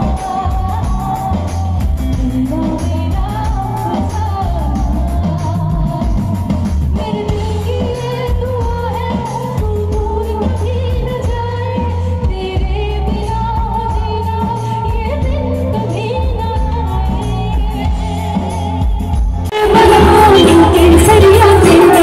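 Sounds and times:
woman singing into a microphone: 0.0s - 22.0s
amplified music with pulsing bass: 15.0s - 22.0s.

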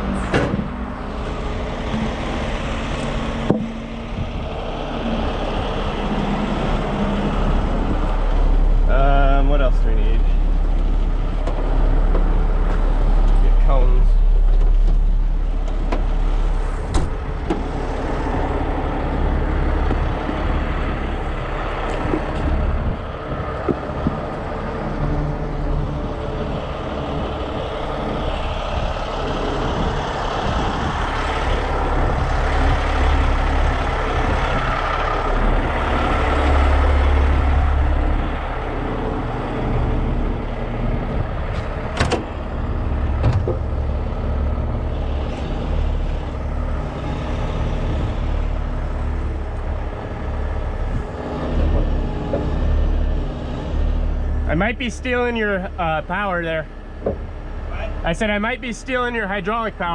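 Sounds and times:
diesel truck engine running: 0.0s - 59.9s
sharp knocks: 3.4s - 3.9s.

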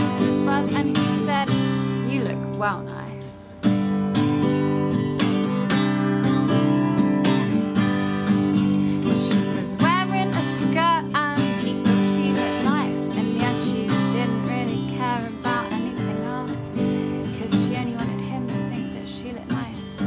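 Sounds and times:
woman singing: 0.0s - 3.6s, 8.8s - 20.0s
acoustic guitar strumming: 0.0s - 20.0s.

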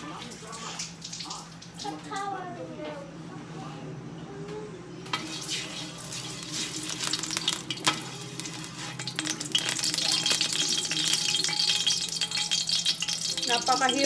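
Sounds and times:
oil sizzling in a wok: 5.1s - 14.0s
spatula scraping metal wok: 7.8s - 12.7s.

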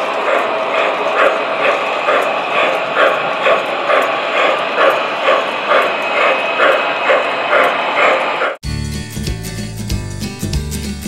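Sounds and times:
model steam locomotive chuffing: 0.0s - 8.6s.

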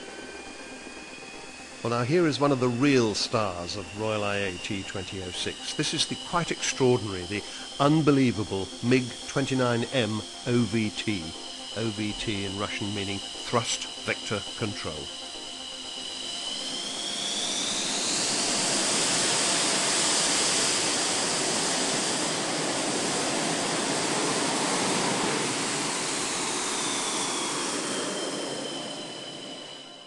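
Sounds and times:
fighter jet engines roaring: 0.0s - 30.0s
high jet whine: 0.0s - 30.0s.

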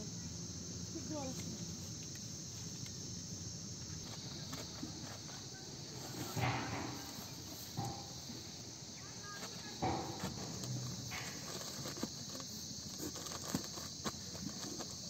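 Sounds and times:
crickets chirring: 0.0s - 15.0s
apples knocking into cardboard box: 9.2s - 15.0s.

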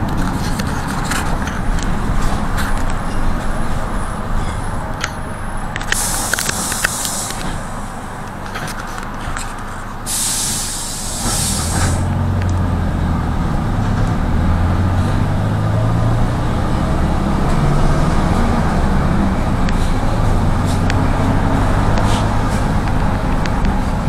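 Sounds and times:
minibus engine accelerating: 0.0s - 24.0s
loud hiss: 5.9s - 8.2s, 10.1s - 12.1s.

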